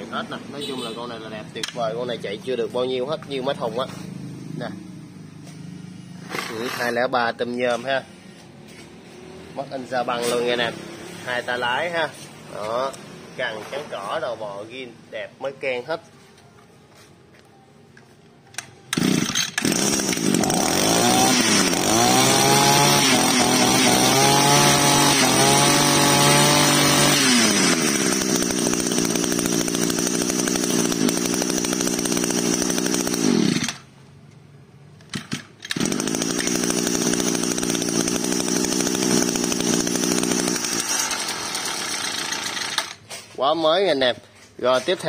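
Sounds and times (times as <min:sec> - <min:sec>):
brush-cutter engine revving and idling: 0:06.2 - 0:07.5, 0:08.7 - 0:13.9, 0:18.9 - 0:33.9, 0:35.1 - 0:43.0.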